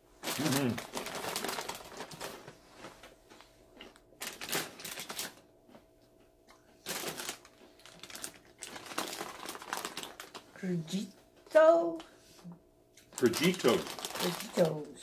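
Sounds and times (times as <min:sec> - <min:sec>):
foil bags crinkling: 0:00.2 - 0:03.2, 0:03.8 - 0:05.5, 0:06.8 - 0:10.6, 0:13.1 - 0:15.0.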